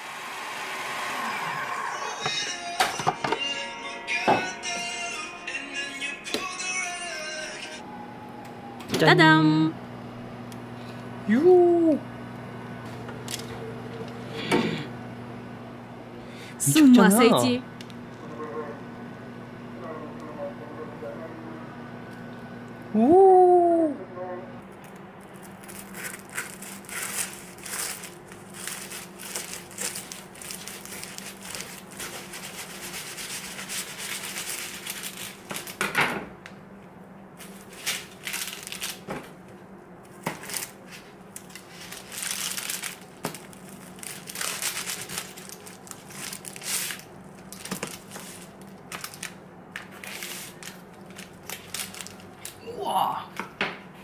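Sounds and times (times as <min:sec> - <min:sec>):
knife sawing through crisp pastry: 0:25.8 - 0:35.2.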